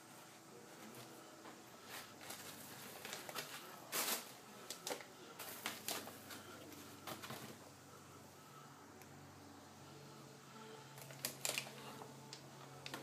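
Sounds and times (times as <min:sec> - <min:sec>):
foam packing rustling and scraping: 0:01.8 - 0:07.6.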